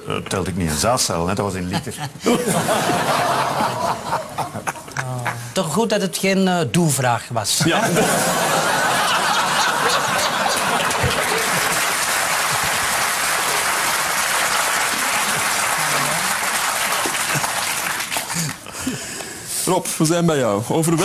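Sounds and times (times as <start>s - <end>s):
audience laughing: 1.8s - 5.4s, 7.6s - 18.6s
audience clapping: 8.0s - 18.7s.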